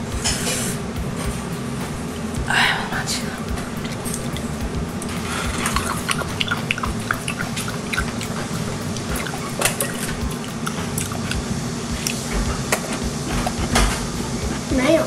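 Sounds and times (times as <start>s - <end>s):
faint steady hum: 0.0s - 15.0s
liquid dripping: 3.4s - 13.7s
wet squelching bites: 5.4s - 11.4s.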